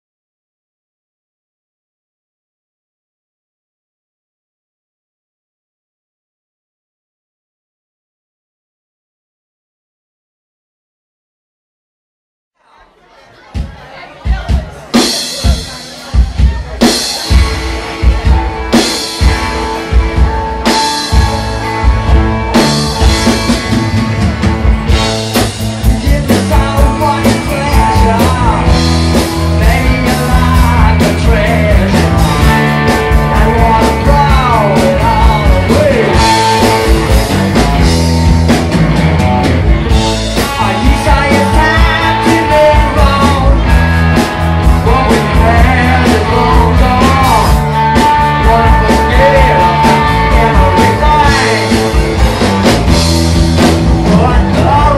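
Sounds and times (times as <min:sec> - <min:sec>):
drums with steady beat: 0:13.5 - 0:54.9
psychedelic rock band playing: 0:13.5 - 0:54.9
bass guitar: 0:13.6 - 0:54.9
electric guitars: 0:14.9 - 0:54.9
man singing lead vocal: 0:25.4 - 0:37.7, 0:40.2 - 0:52.4, 0:53.9 - 0:54.9.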